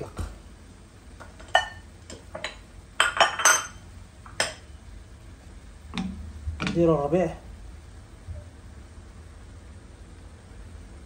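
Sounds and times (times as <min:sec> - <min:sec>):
kitchenware clinking and knocking: 0:01.3 - 0:03.8.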